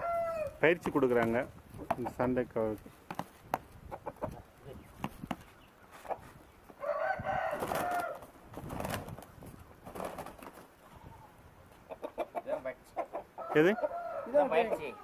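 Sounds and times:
rooster crowing: 0:00.0 - 0:00.6, 0:06.8 - 0:08.3, 0:13.4 - 0:15.0
wings flapping: 0:07.4 - 0:10.8.

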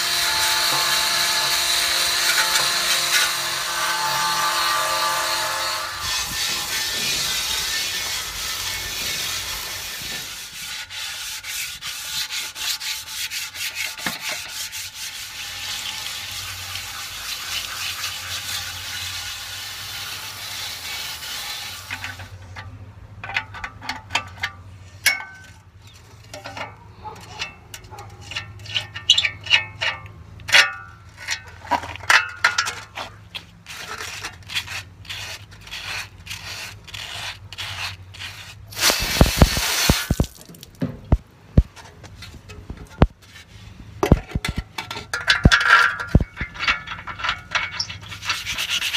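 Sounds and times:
sandpaper rubbing on metal: 0:00.2 - 0:22.3, 0:33.0 - 0:40.3, 0:47.7 - 0:48.9.

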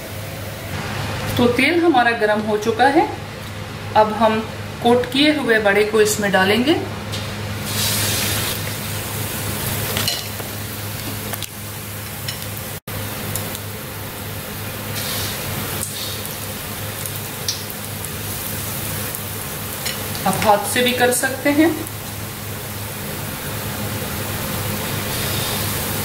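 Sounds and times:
food sizzling in hot oil: 0:07.1 - 0:26.0.

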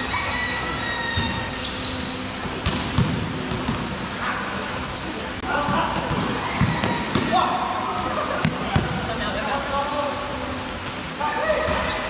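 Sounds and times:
shoe squeaks: 0:00.2 - 0:07.8, 0:08.8 - 0:12.0
basketball bouncing on court: 0:02.4 - 0:04.0, 0:05.6 - 0:07.4, 0:08.4 - 0:09.2.

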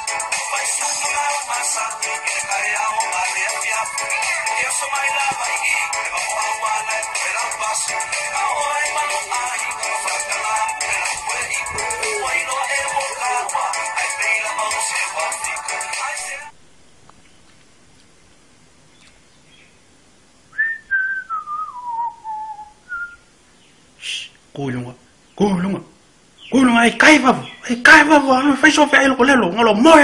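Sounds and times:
thin-sounding music: 0:00.0 - 0:16.5
person whistling: 0:20.6 - 0:23.2.

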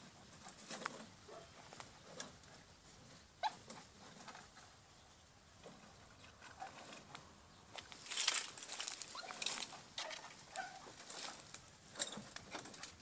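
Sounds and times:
rustling and snapping twigs: 0:00.4 - 0:02.5, 0:05.6 - 0:13.0.

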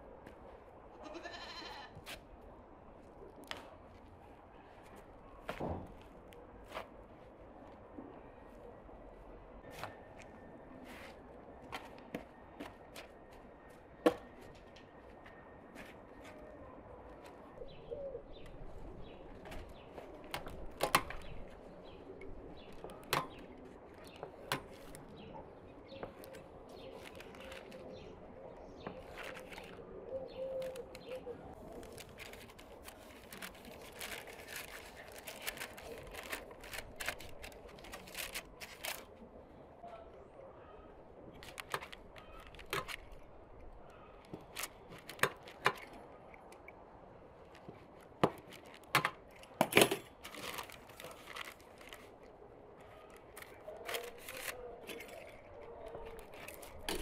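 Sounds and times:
birds cooing and chirping: 0:16.3 - 0:20.2, 0:21.2 - 0:32.4
dough handling clicks and rustles: 0:22.6 - 0:25.3, 0:26.0 - 0:28.1, 0:28.7 - 0:39.2, 0:41.3 - 0:46.7, 0:47.4 - 0:57.0.

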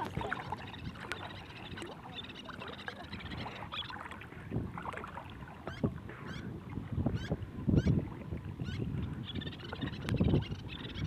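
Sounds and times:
water sloshing and lapping: 0:00.0 - 0:11.0
small splashes: 0:03.7 - 0:05.8.

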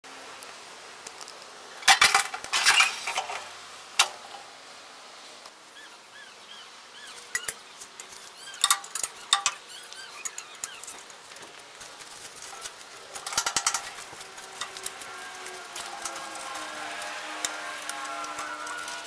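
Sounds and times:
metal tools clinking: 0:01.8 - 0:03.4, 0:07.3 - 0:11.2, 0:12.4 - 0:19.0
small birds chirping: 0:05.7 - 0:19.0.

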